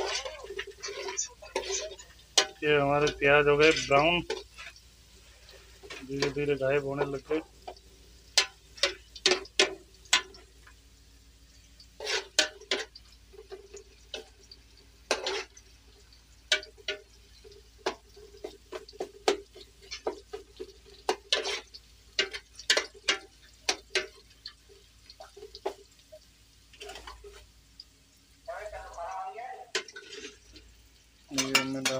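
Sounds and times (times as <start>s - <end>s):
metal spoon scraping a pot: 0.0s - 4.8s, 12.0s - 14.3s, 15.1s - 15.6s, 16.5s - 24.6s, 26.8s - 27.4s, 29.7s - 30.6s
onions sizzling in oil: 0.0s - 31.9s.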